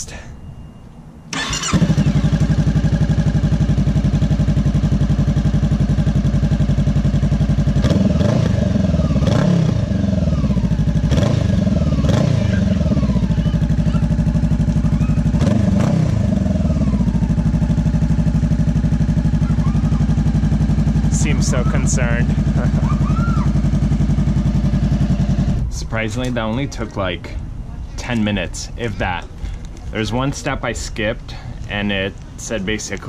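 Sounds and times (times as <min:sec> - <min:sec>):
motorcycle engine idling and revving: 0:01.3 - 0:27.7.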